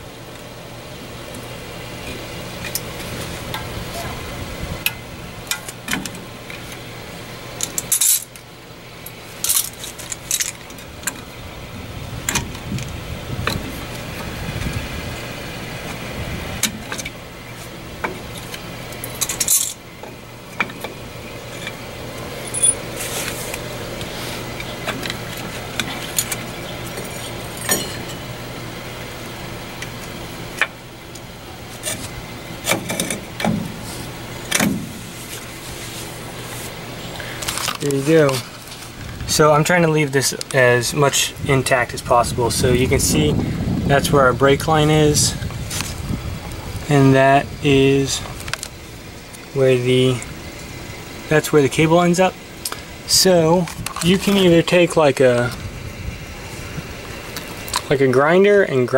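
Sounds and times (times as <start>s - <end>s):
metal clicks and clinks: 25.8s - 28.2s.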